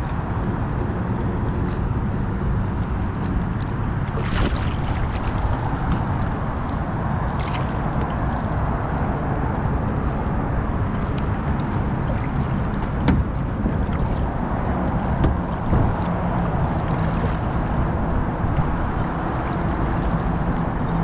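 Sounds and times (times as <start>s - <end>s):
low rumble: 0.0s - 21.0s
water sloshing around kayak: 0.0s - 21.0s
brief splashes: 4.0s - 6.6s, 7.3s - 8.5s.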